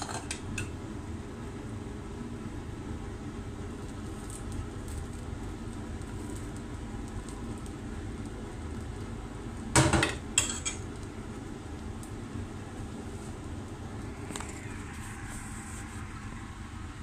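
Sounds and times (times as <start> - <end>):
low rumble: 12.4 - 17.0.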